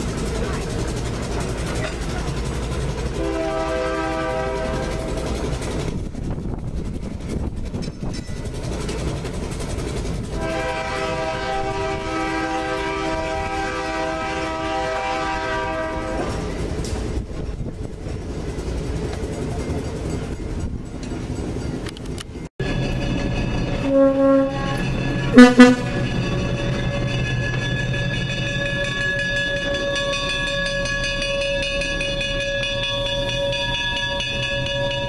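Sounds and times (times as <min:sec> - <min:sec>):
streetcar rumbling past: 0:00.0 - 0:35.0
railway air horn blasts: 0:03.2 - 0:05.4, 0:10.3 - 0:16.5, 0:23.8 - 0:26.1.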